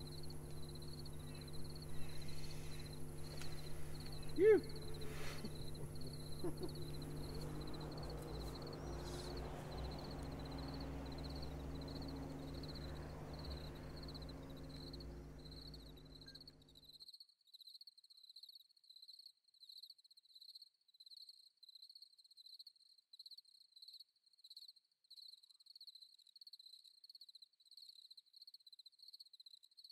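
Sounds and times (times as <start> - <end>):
low electrical hum: 0.0 - 16.8
crickets chirping: 0.0 - 29.7.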